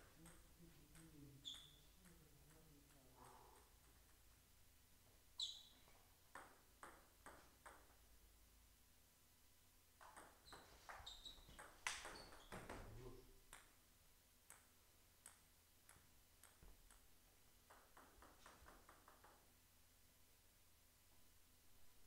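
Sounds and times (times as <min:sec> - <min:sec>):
ball bouncing on floor: 0:00.0 - 0:04.3, 0:05.6 - 0:08.0, 0:10.0 - 0:13.8, 0:14.5 - 0:19.5
ball bounced on table: 0:10.0 - 0:13.7.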